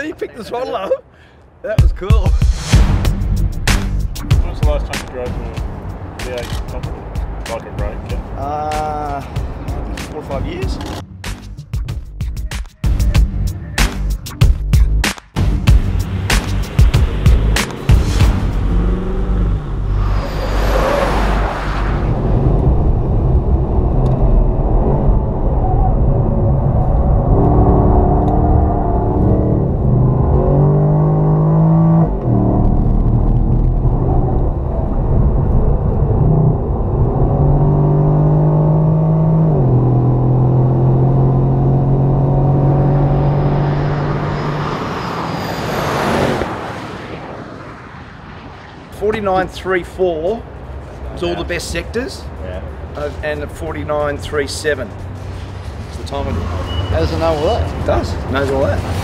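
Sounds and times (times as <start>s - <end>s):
race car engine at full throttle: 15.8s - 49.0s.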